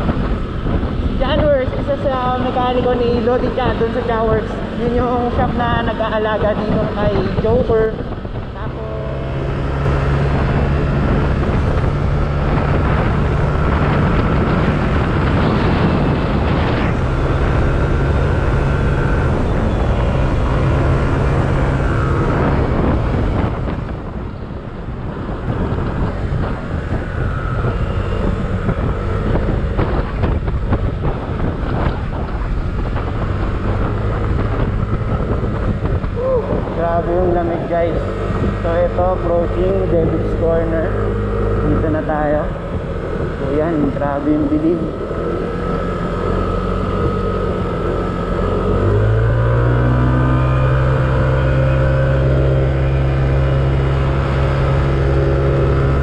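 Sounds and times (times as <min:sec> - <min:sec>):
scooter engine running: 0:00.0 - 0:56.0
wind rush on microphone: 0:00.0 - 0:56.0.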